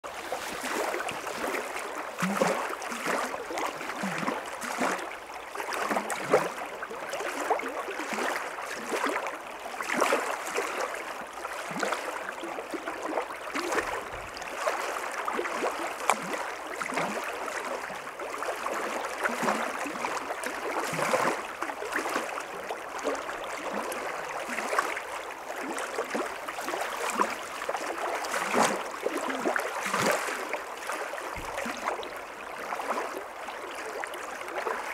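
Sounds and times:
small water splashes: 0.0s - 34.9s
stream rushing: 0.1s - 4.0s.

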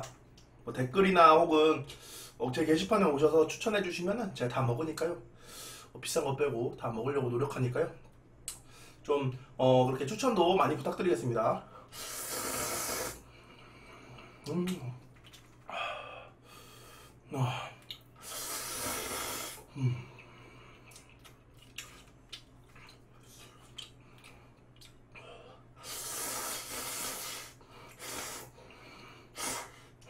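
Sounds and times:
person slurping noodles: 12.0s - 13.2s, 18.2s - 19.6s, 25.8s - 28.5s
chewing: 15.0s - 15.7s, 20.8s - 25.2s.

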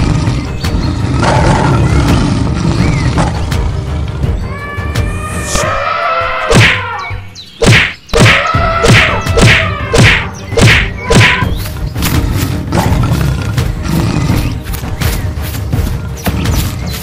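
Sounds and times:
cartoon whack sound effects: 6.5s - 6.8s, 7.6s - 11.5s.

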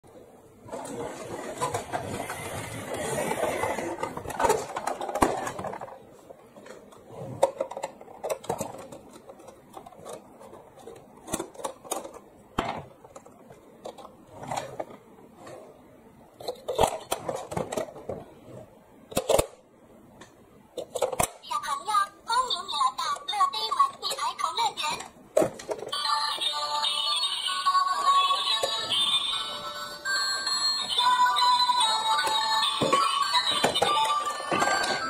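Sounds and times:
plastic toy clicks and scrapes: 0.7s - 6.0s, 16.4s - 18.2s, 32.1s - 35.0s
plastic toy train rolling rattle: 0.7s - 6.0s, 30.9s - 35.0s.

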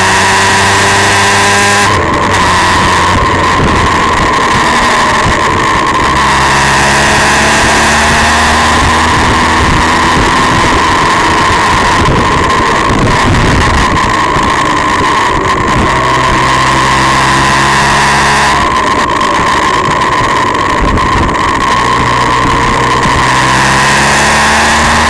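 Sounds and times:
motorcycle engine running: 0.0s - 25.0s
wind rush on microphone: 0.0s - 25.0s.

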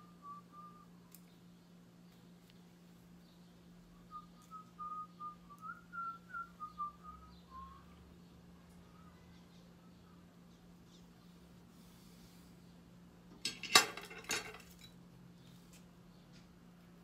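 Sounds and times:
steady low hum: 0.0s - 17.0s
person whistling a tune: 4.1s - 7.9s.

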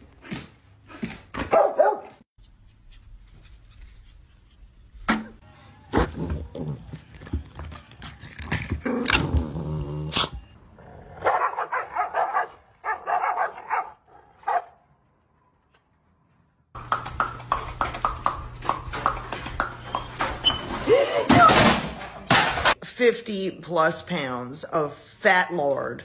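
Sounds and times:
dogs growling and barking: 5.9s - 14.6s.

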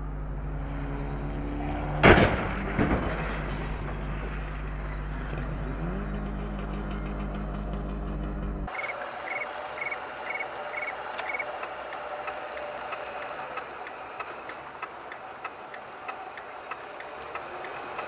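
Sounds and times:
short electronic beeps: 8.7s - 11.6s
light regular ticking: 8.7s - 18.0s.

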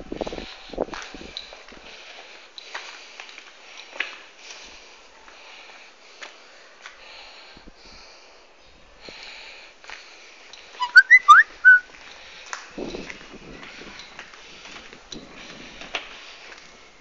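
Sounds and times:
person whistling: 10.8s - 11.9s.

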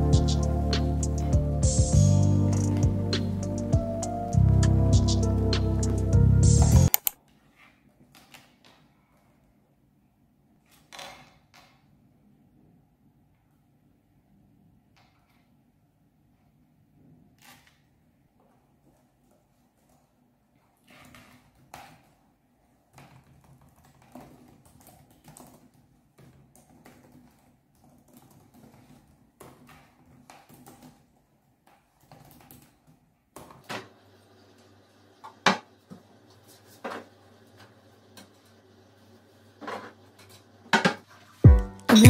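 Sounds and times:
steady hum: 0.0s - 6.9s
laptop keyboard typing: 2.5s - 7.2s, 23.0s - 31.1s.

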